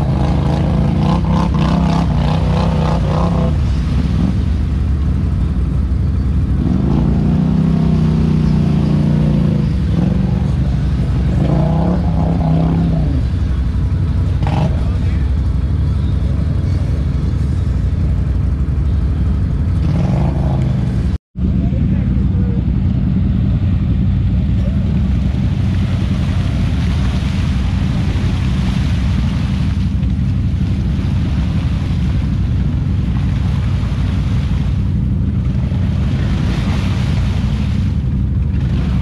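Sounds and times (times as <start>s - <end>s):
atv engine revving: 0.0s - 39.0s
low engine drone: 0.0s - 39.0s
tyres churning in mud: 0.0s - 39.0s.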